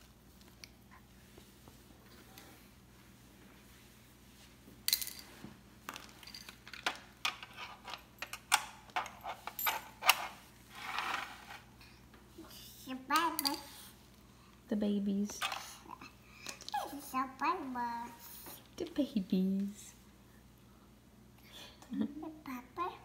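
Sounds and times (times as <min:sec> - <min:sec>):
plastic toys clattering on floor: 0:04.9 - 0:11.7
scratchy rustle: 0:10.7 - 0:11.7.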